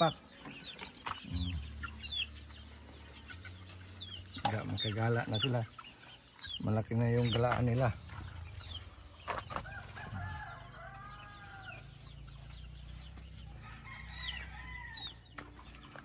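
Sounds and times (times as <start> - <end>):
chicks peeping: 0.0 - 16.0
rooster crowing: 9.6 - 12.0, 13.6 - 15.2.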